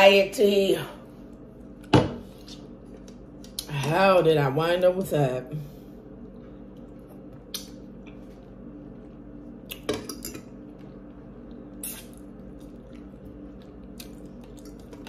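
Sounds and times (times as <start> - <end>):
faint hum: 0.0 - 15.0
wet eating sounds: 10.6 - 15.0.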